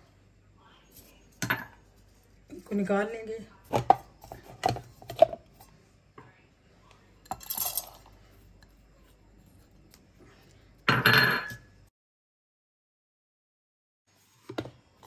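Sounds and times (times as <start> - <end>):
metal cup knocks and clinks: 1.4 - 1.8, 10.9 - 11.7.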